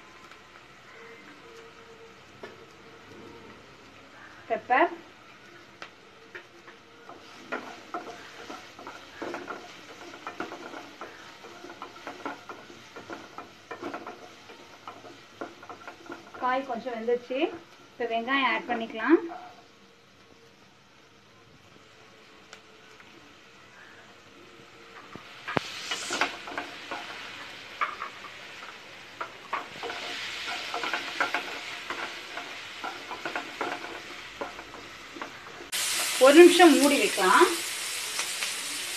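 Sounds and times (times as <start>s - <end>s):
vegetables sizzling in oil: 0.0s - 38.9s
wooden spatula scraping pan: 7.1s - 17.7s, 25.5s - 35.8s.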